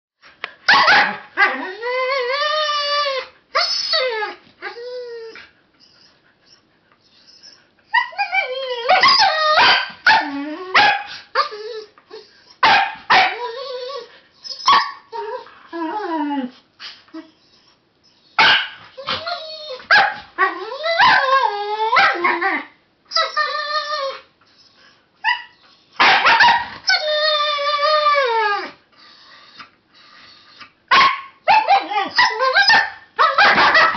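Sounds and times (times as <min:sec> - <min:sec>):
husky yipping and howling: 0:00.7 - 0:05.4, 0:07.4 - 0:11.9, 0:12.6 - 0:16.5, 0:18.4 - 0:24.2, 0:25.2 - 0:28.8, 0:30.9 - 0:33.9.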